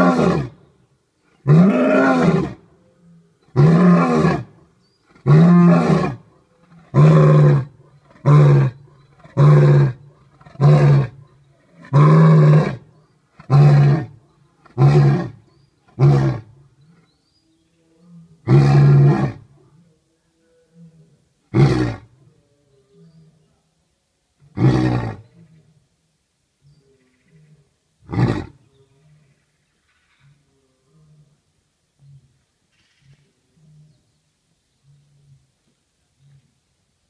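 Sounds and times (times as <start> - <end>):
lion roaring: 1.4 - 2.6.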